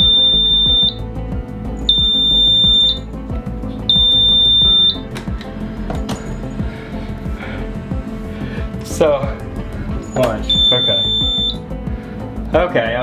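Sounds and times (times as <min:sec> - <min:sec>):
alarm buzzer high beeps: 0:00.0 - 0:01.1, 0:01.9 - 0:03.1, 0:03.9 - 0:05.1, 0:10.5 - 0:11.6
background music: 0:00.0 - 0:13.0.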